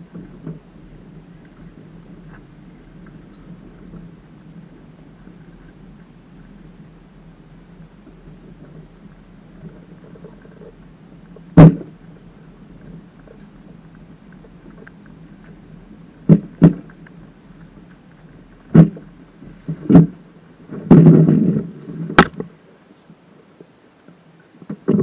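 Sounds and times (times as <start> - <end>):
boat hull rumbling: 0.0 - 22.6, 24.6 - 25.0
knocks through boat hull: 11.6 - 11.9.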